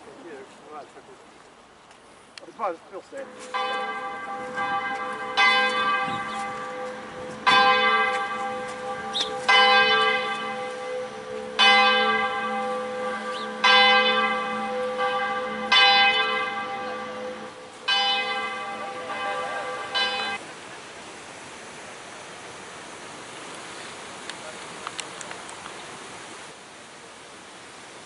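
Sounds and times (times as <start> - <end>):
church bell tolling: 3.2 - 20.4.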